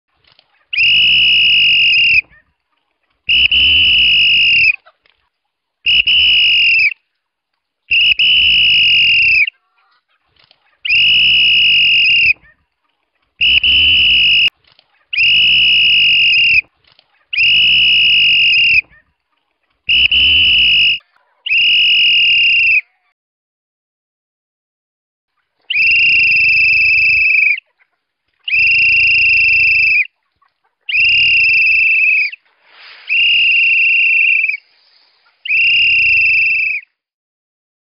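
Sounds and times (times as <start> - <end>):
whistle blasts: 0.8 - 2.4, 3.3 - 4.8, 5.9 - 7.0, 7.9 - 9.5, 10.9 - 12.4, 13.4 - 14.6, 15.2 - 16.7, 17.4 - 19.0, 19.9 - 22.9, 25.7 - 27.6, 28.5 - 30.1, 30.9 - 37.0.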